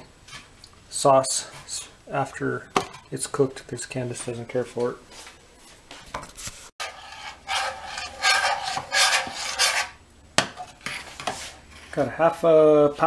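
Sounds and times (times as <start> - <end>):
fork scraping spaghetti in colander: 6.8 - 10.0.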